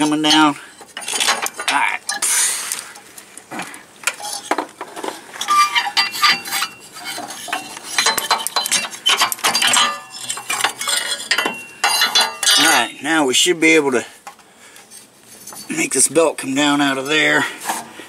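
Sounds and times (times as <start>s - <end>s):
metal clinking and knocking: 0.0s - 2.3s, 4.1s - 13.1s.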